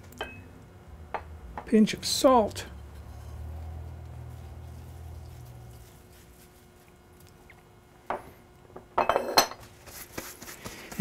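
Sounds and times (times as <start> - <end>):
hands wiped on cloth towel: 9.7 - 11.0.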